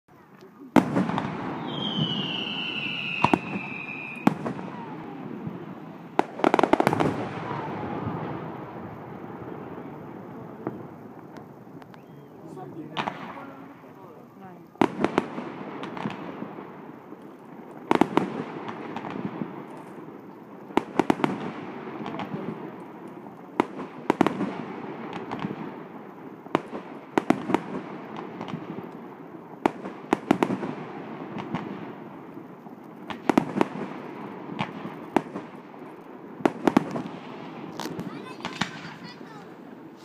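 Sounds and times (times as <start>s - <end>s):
fireworks shells bursting: 31.4s - 40.0s.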